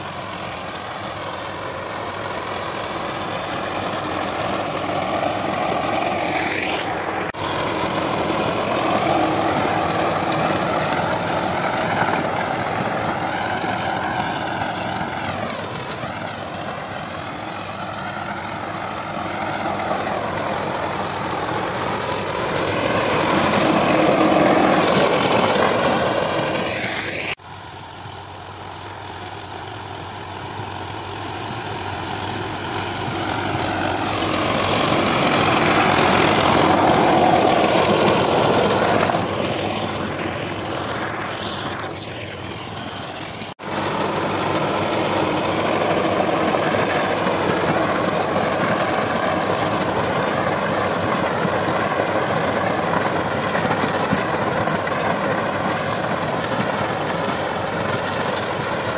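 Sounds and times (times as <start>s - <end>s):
tractor diesel engine running: 0.0s - 58.9s.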